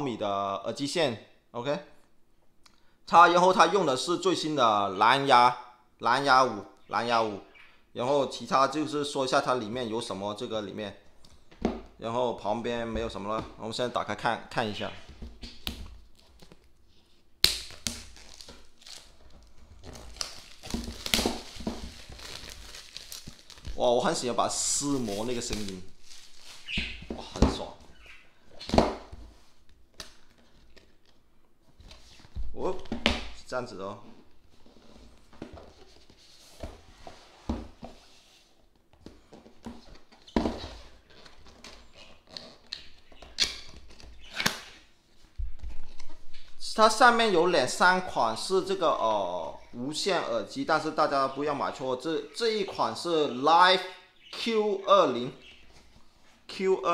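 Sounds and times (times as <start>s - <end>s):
plastic wrap being torn: 17.4s - 23.8s, 24.6s - 26.8s
scratching and crinkling plastic: 17.7s - 27.3s.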